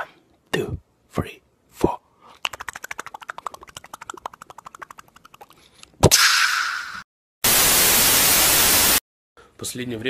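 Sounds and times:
rapid mouth clicks: 2.3 - 6.0
loud noisy burst: 7.4 - 9.0.

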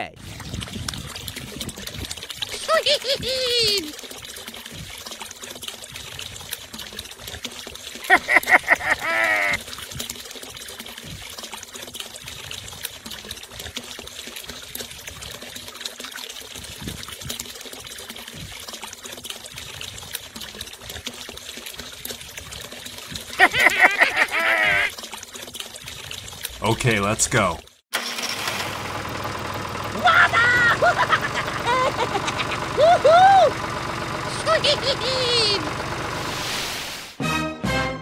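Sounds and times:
water trickling into puddle: 0.2 - 27.8, 28.8 - 36.3.

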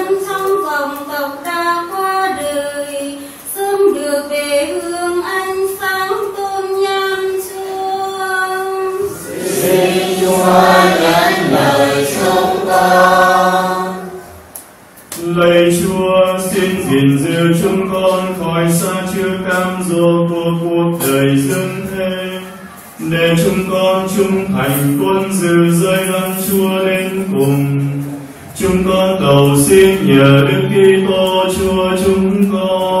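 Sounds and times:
church choir singing a hymn: 8.9 - 14.4, 15.2 - 22.4, 23.0 - 27.9, 28.5 - 33.0.

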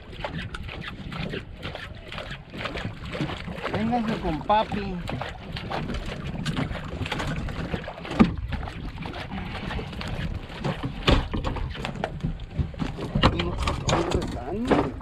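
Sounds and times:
water slapping boat hull: 0.0 - 15.0
clicks and knocks: 11.0 - 15.0.

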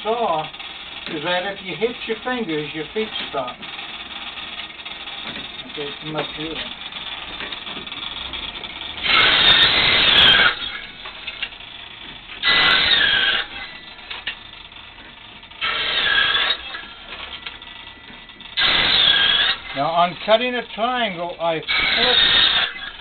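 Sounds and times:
flywheel mechanical whir: 0.0 - 23.0
saw cutting wood: 9.0 - 11.4, 12.4 - 14.1, 15.6 - 17.3, 18.6 - 20.0, 21.7 - 23.0.

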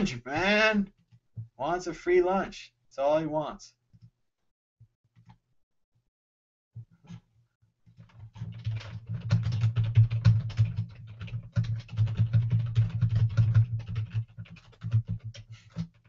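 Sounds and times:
fast typing on keyboard: 7.9 - 16.0.

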